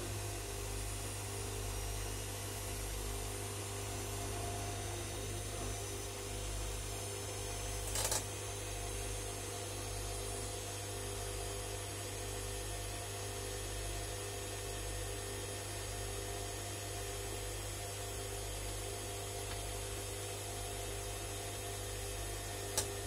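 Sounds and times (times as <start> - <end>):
washing machine running: 0.0 - 9.6, 17.0 - 23.0.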